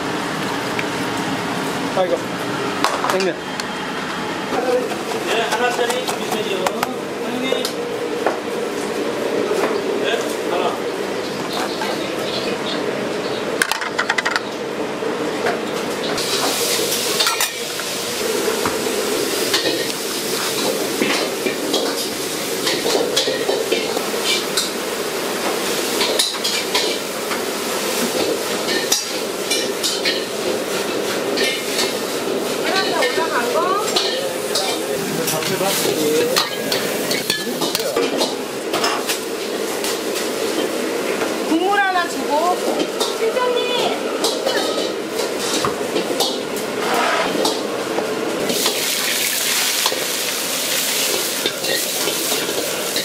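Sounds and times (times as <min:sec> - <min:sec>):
food sizzling in wok: 0:16.2 - 0:53.0
ladle scraping wok: 0:44.2 - 0:47.7.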